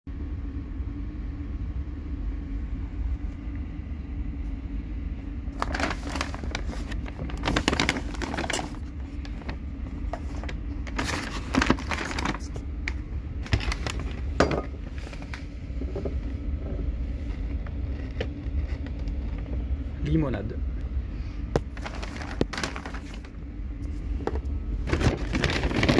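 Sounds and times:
paper bag rustling: 0:05.5 - 0:15.6, 0:21.6 - 0:25.9.

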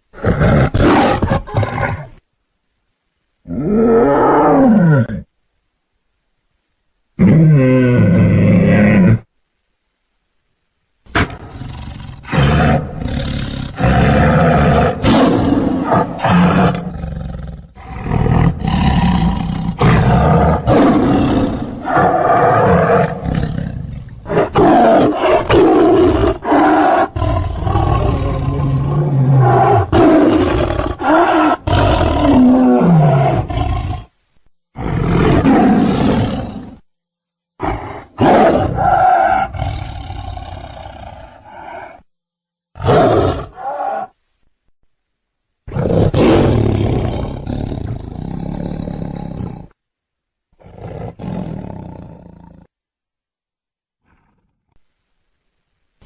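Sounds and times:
tiger roaring and growling: 0:00.1 - 0:02.2, 0:11.1 - 0:34.1, 0:34.7 - 0:36.9, 0:37.6 - 0:42.1, 0:42.8 - 0:44.2, 0:45.7 - 0:49.8, 0:50.5 - 0:52.7, 0:54.0 - 0:54.8.

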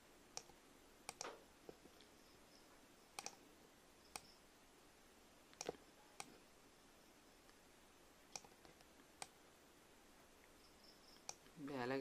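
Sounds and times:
computer mouse and keyboard clicks: 0:00.4 - 0:02.1, 0:03.2 - 0:03.4, 0:05.6 - 0:06.4, 0:08.3 - 0:09.4.

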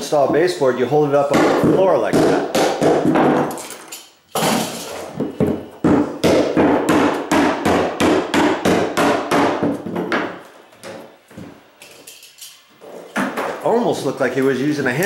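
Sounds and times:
hammer striking nails: 0:01.3 - 0:03.6, 0:04.4 - 0:10.4.

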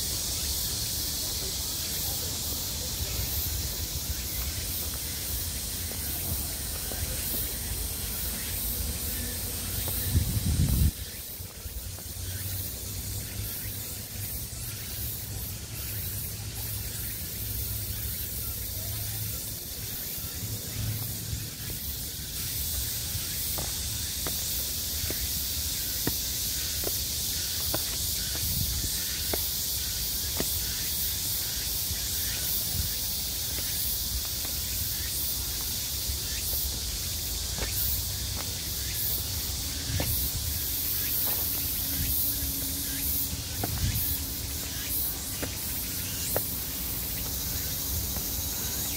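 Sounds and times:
high-pitched forest hiss: 0:00.0 - 0:48.9
soft footsteps on trail: 0:02.2 - 0:13.4, 0:21.0 - 0:48.9.

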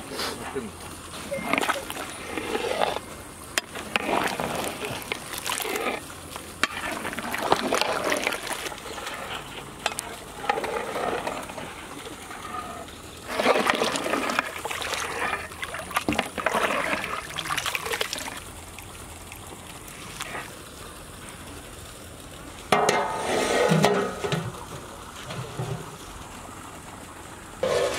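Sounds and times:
liquid sloshing in pot: 0:01.2 - 0:20.5.

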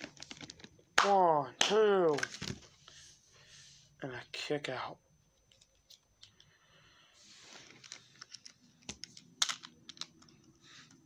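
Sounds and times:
soft rustle: 0:07.1 - 0:08.3.

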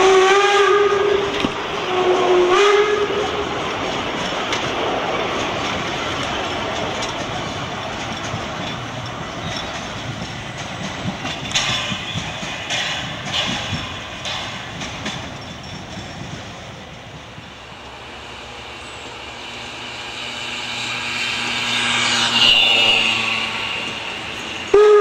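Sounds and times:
steam locomotive approaching: 0:00.0 - 0:25.0
train wheels clicking over rail joints: 0:00.0 - 0:25.0
high squeal: 0:18.0 - 0:25.0.

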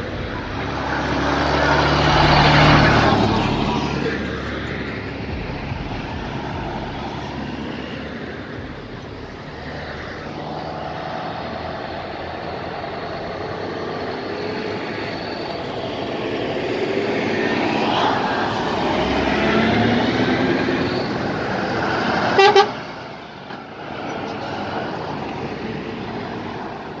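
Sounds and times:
heavy trucks driving past: 0:00.0 - 0:27.0
truck horn blast: 0:22.3 - 0:22.9.

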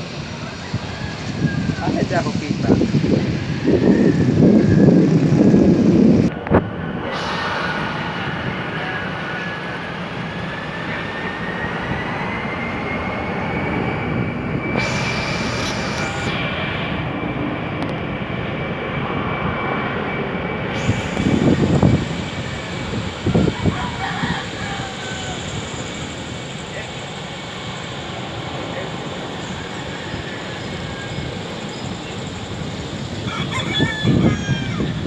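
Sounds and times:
jet engines running: 0:00.0 - 0:35.0.

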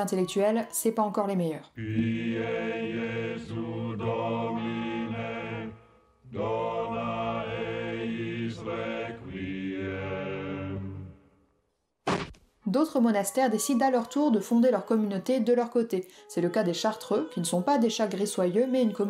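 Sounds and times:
plainchant singing: 0:01.8 - 0:11.3.

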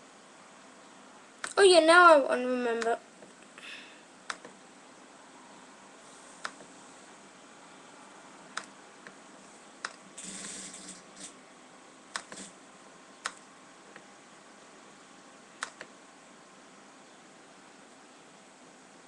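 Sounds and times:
mouse and keyboard clicks: 0:04.3 - 0:04.6, 0:12.1 - 0:12.6, 0:13.2 - 0:13.5, 0:15.6 - 0:15.9.

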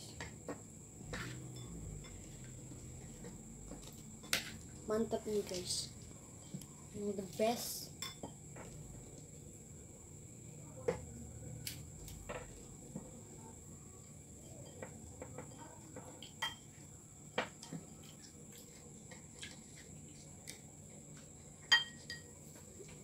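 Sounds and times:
faint high-pitched whine: 0:00.0 - 0:23.0
spoons clinking on bowls: 0:01.1 - 0:02.3, 0:08.0 - 0:08.4, 0:14.4 - 0:16.8, 0:21.7 - 0:22.4.

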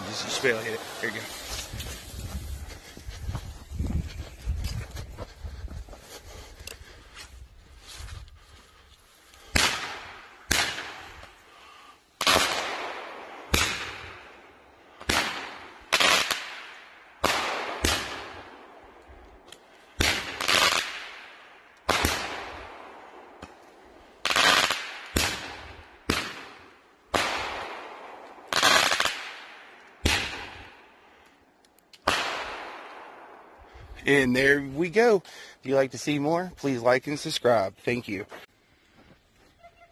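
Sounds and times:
roman candle fireworks bangs: 0:09.5 - 0:11.3, 0:12.2 - 0:14.4, 0:15.0 - 0:18.7, 0:20.0 - 0:23.6, 0:24.2 - 0:30.9, 0:32.0 - 0:33.5.

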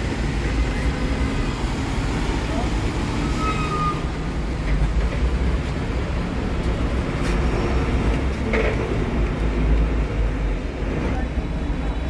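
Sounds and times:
street background rumble: 0:00.0 - 0:12.0.

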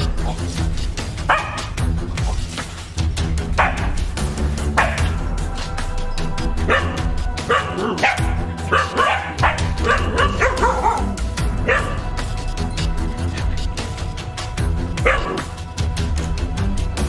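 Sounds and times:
background music with beat: 0:00.0 - 0:17.0
dogs barking: 0:01.2 - 0:01.9, 0:03.5 - 0:05.4, 0:06.5 - 0:12.3, 0:14.9 - 0:15.6.

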